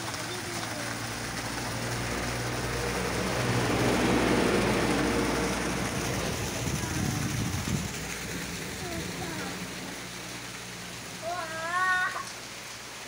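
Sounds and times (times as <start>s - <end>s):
water gushing into pool: 0.0s - 13.0s
low hum: 1.4s - 11.2s.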